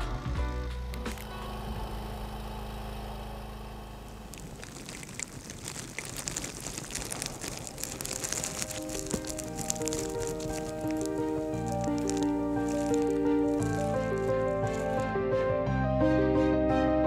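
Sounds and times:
steady low hum: 0.0s - 6.0s
ice-coated branches crackling: 3.5s - 15.5s.

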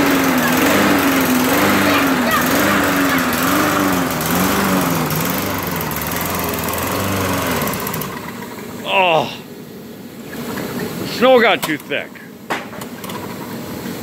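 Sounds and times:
lawn mower engine running: 0.0s - 14.0s.

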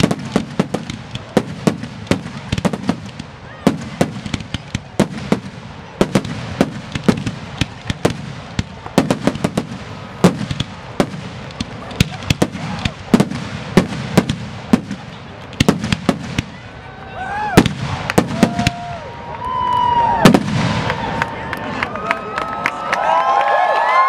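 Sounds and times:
firework shells bursting: 0.0s - 16.6s, 17.6s - 18.9s.

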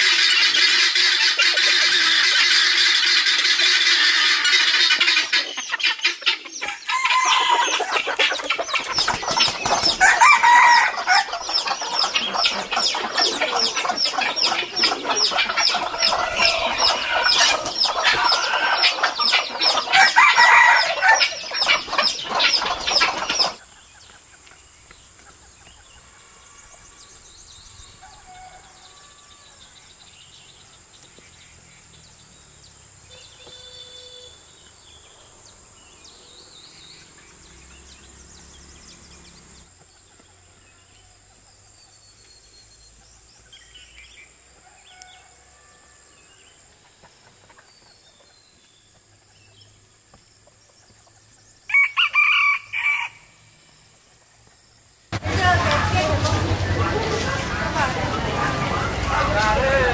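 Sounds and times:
roosters crowing: 0.0s - 23.6s, 25.8s - 30.7s, 33.1s - 39.7s, 44.0s - 46.7s, 51.6s - 53.9s, 55.1s - 59.9s
chickens clucking: 0.0s - 27.2s, 46.3s - 54.5s, 55.1s - 59.9s
wings flapping: 8.8s - 10.2s.

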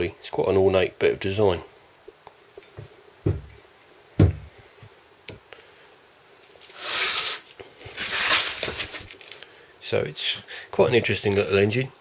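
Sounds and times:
dull knocks on wooden bench: 2.8s - 3.5s, 4.2s - 4.5s
rustling handling noise: 6.4s - 9.5s.

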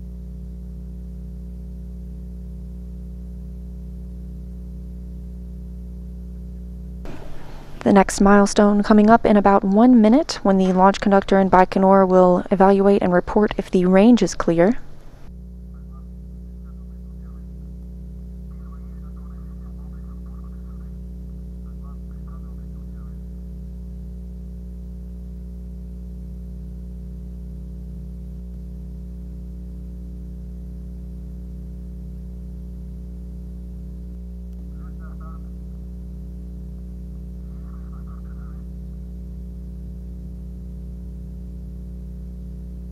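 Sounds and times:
low electrical hum: 0.0s - 42.9s
faint voice: 34.7s - 35.6s, 37.4s - 38.7s.

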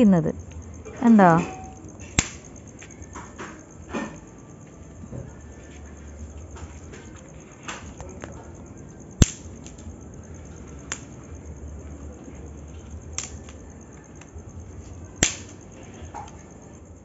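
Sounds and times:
dry sticks snapping: 2.1s - 3.0s, 9.2s - 9.9s, 10.9s - 11.1s, 13.2s - 14.3s, 15.2s - 15.6s.

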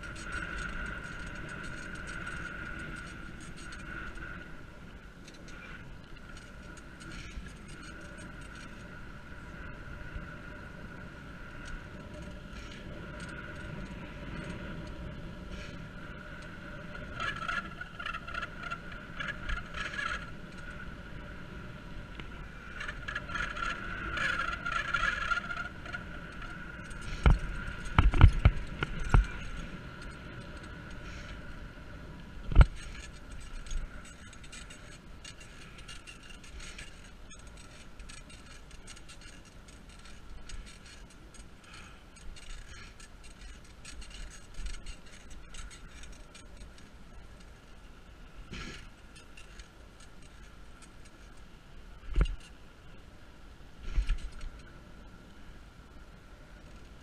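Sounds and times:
bike knocking and rattling: 0.0s - 10.6s, 11.4s - 21.4s, 22.1s - 31.7s, 32.4s - 52.6s, 53.8s - 54.7s
bicycle rolling over asphalt: 0.0s - 57.0s.

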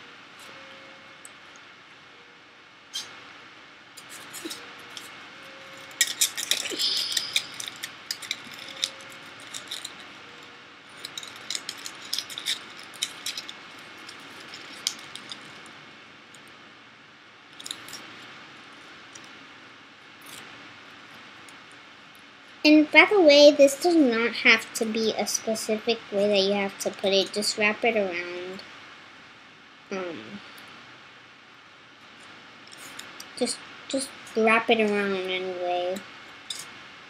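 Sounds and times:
aluminium foil crinkling: 4.0s - 15.8s, 17.5s - 18.3s, 32.2s - 34.0s.

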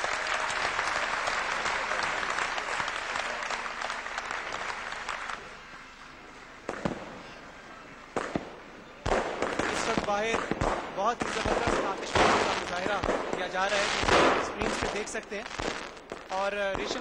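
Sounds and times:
audience applause: 0.0s - 6.6s
firework bangs: 6.6s - 7.4s, 8.1s - 17.0s.

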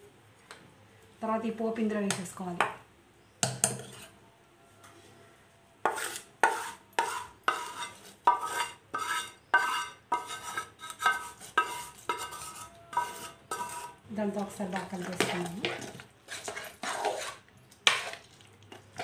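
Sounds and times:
metal spoon scraping a pan: 3.6s - 4.2s, 5.8s - 18.4s.

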